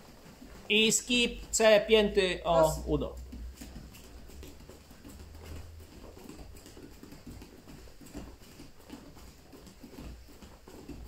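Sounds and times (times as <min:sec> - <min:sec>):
bare feet patting on foam mats: 0:00.0 - 0:11.0.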